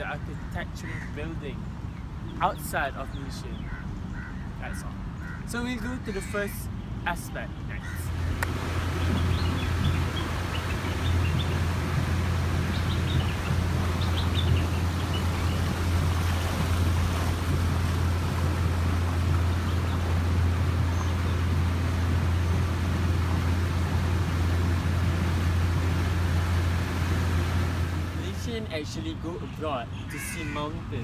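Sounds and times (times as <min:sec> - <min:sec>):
water noise: 0:00.0 - 0:29.4
motorboat engine droning: 0:07.8 - 0:29.2.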